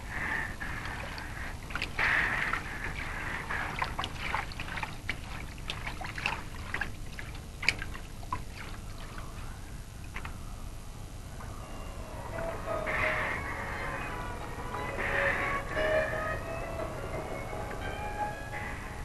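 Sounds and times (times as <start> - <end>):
slushy ice and water sloshing: 0.7 - 10.2
splash: 0.8 - 9.4.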